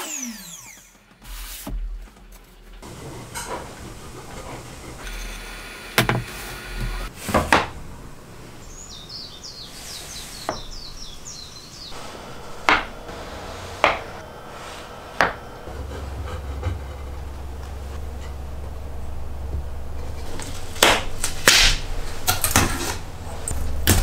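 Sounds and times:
tools and wood knocking: 0:13.8 - 0:14.2, 0:15.2 - 0:18.8.

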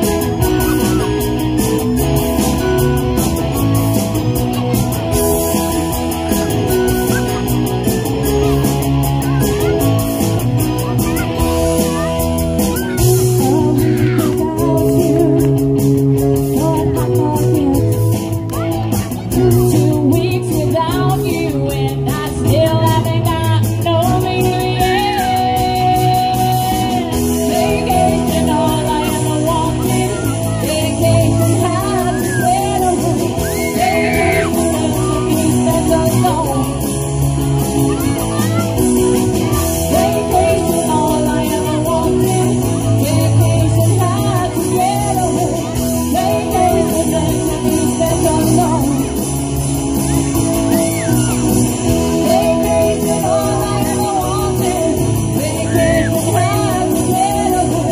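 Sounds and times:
drums: 0:00.0 - 0:57.9
electric guitars: 0:00.0 - 0:57.9
keyboard: 0:00.0 - 0:57.9
women singing lead: 0:13.0 - 0:15.6, 0:19.4 - 0:37.1, 0:39.4 - 0:49.3, 0:50.8 - 0:57.9.

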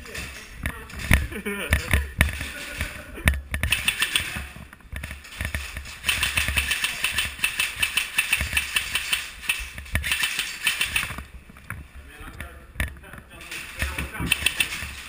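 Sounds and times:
airsoft guns firing full-auto: 0:03.6 - 0:04.5, 0:06.0 - 0:11.3, 0:13.8 - 0:15.0.

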